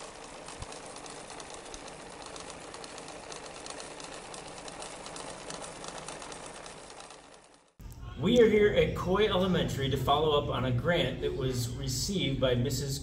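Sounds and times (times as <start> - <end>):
sewing machine stitching: 0.0 - 7.8.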